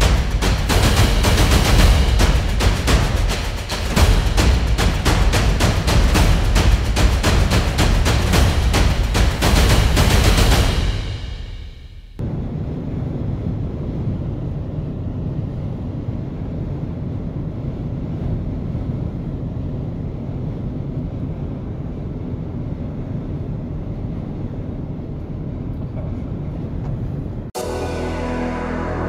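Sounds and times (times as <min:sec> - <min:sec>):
strong wind buffeting microphone: 0:12.2 - 0:27.6.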